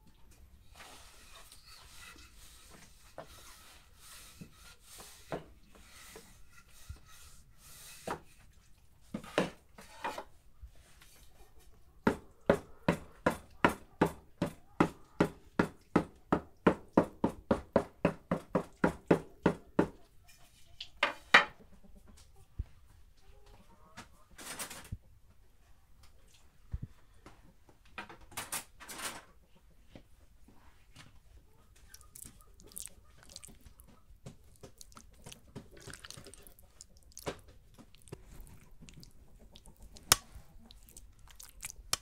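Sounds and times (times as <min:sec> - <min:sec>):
soft rubbing of dough: 0:00.3 - 0:11.8, 0:29.8 - 0:42.0.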